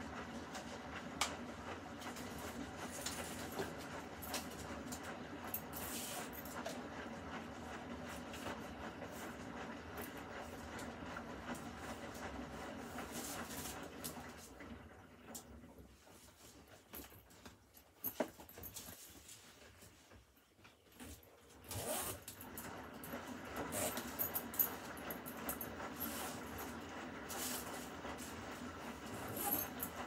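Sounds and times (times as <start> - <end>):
washing machine drum churning: 0.0 - 16.9, 22.3 - 30.0.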